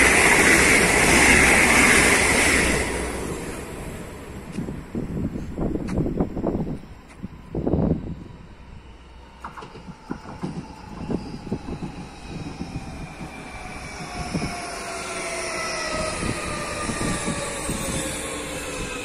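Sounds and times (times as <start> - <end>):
train motor whine: 4.5 - 19.0.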